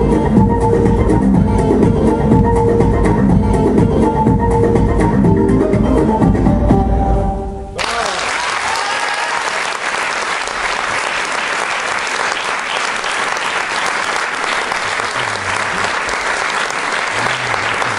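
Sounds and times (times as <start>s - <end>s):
audience applause: 7.8s - 17.9s.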